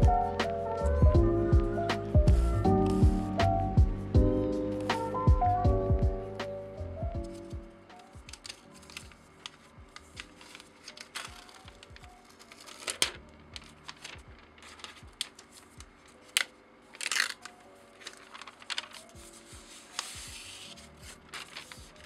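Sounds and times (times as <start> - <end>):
soft background music: 0.0 - 22.0
paper rustling and crinkling: 7.2 - 22.0
paper tearing: 8.3 - 22.0.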